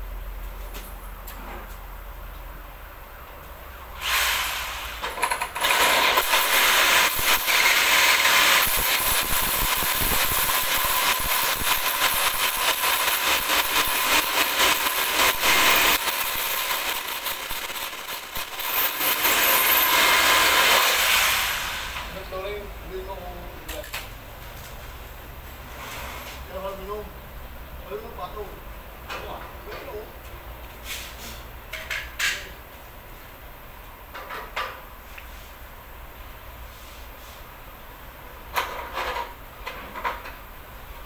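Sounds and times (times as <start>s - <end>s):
electric drill drilling: 4.0s - 22.0s.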